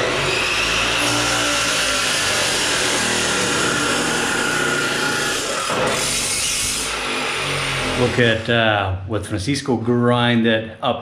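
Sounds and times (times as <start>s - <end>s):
power grinder grinding metal: 0.0s - 8.5s.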